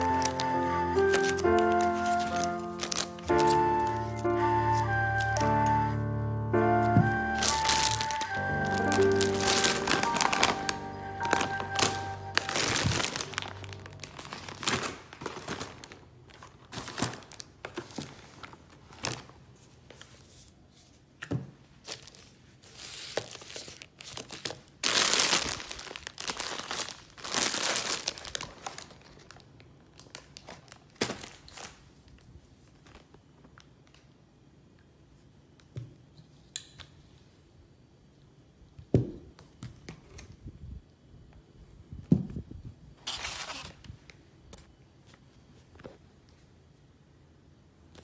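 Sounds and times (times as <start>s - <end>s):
plastic packaging crinkling: 0.0s - 5.9s, 6.8s - 19.8s, 21.8s - 34.0s.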